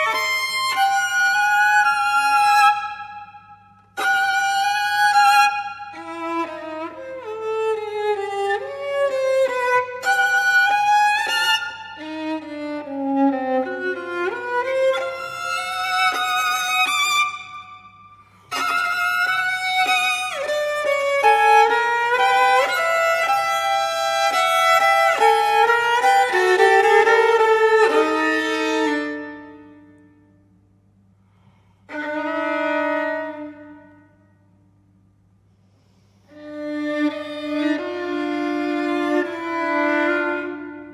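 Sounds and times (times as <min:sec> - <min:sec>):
solo violin playing: 0:00.0 - 0:30.2, 0:31.9 - 0:34.2, 0:36.3 - 0:40.9.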